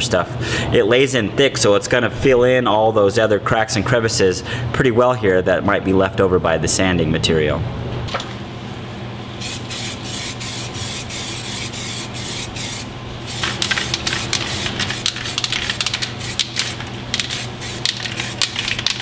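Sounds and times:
spray can hissing: 9.4s - 19.0s.

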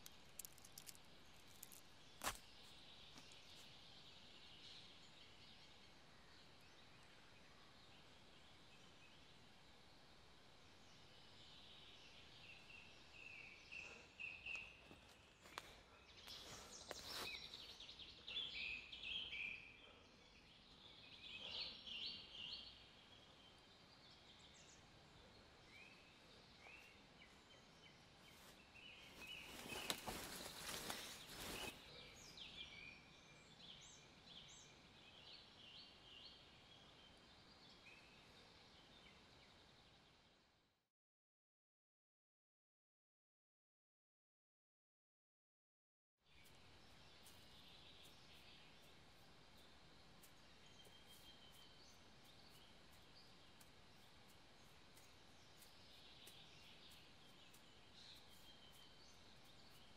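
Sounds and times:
small birds chirping: 0.0s - 40.8s, 46.3s - 59.9s
noisy rustle: 28.3s - 32.0s.

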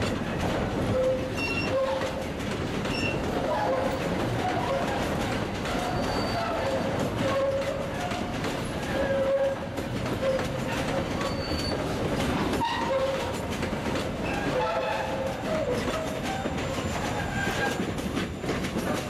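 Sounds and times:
train wheels clattering: 0.0s - 19.0s
high-pitched wheel squeals: 0.9s - 2.0s, 2.9s - 4.0s, 5.8s - 7.6s, 10.2s - 11.8s.

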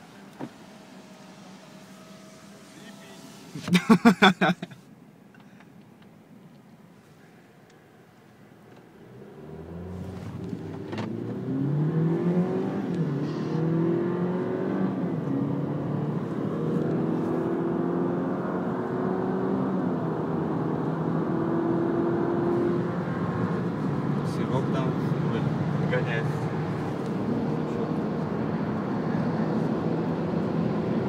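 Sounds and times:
car engine accelerating hard: 9.1s - 31.0s.

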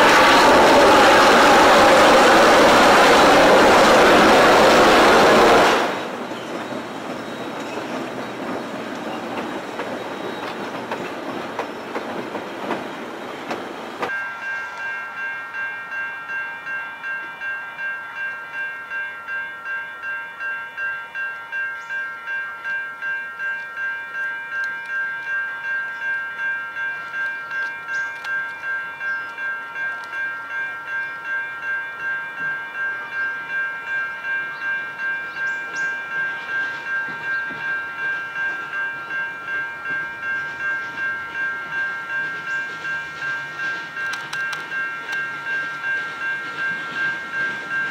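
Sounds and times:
loud rushing noise: 0.0s - 6.2s
crossing warning bell dinging: 0.0s - 47.9s.

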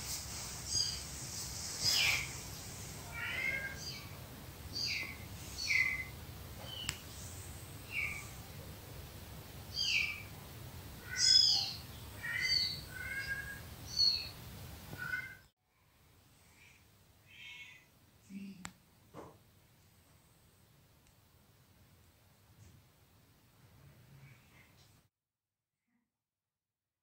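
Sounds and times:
cat meows: 3.1s - 3.8s.

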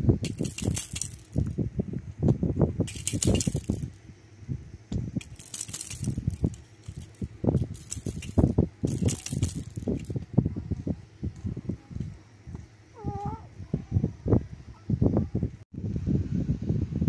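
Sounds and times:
baby toy jingling: 0.2s - 1.5s, 2.9s - 3.9s, 5.2s - 10.2s
rustling: 5.2s - 10.2s.

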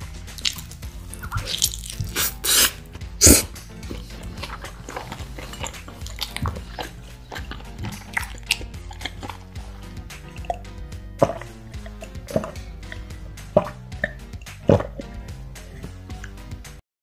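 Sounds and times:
background music: 0.0s - 16.8s
chewing clicks: 0.3s - 2.8s, 3.8s - 15.1s
crunchy bites of pizza crust: 0.3s - 9.6s.

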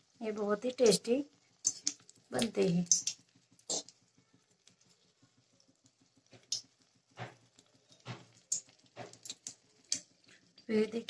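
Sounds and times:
deep-frying crackle in oil: 0.0s - 11.0s.

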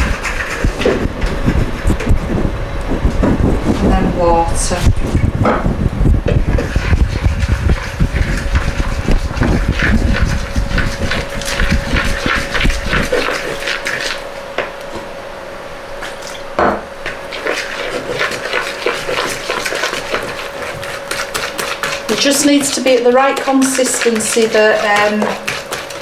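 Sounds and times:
utensil scraping a bowl: 0.0s - 2.0s, 6.4s - 14.2s, 17.1s - 26.0s
low rumble: 0.0s - 13.4s.

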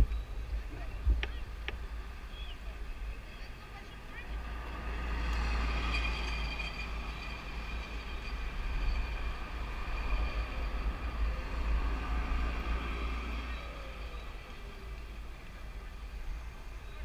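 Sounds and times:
faint street ambience: 0.0s - 17.0s.

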